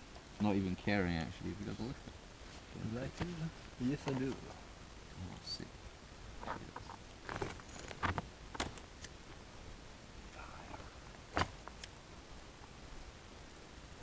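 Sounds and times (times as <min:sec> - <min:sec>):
campfire crackling and popping: 0:00.0 - 0:09.5, 0:11.0 - 0:12.8.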